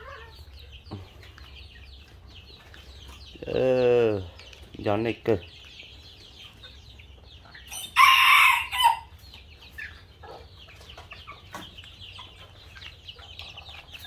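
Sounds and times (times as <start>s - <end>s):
chicks peeping: 0.0s - 14.0s
rooster crowing: 7.7s - 9.1s.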